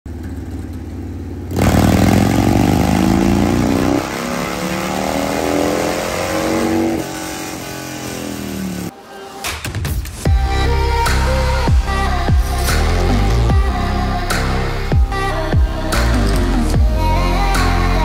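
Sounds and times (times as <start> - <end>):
motorcycle engine revving: 0.1 - 8.9.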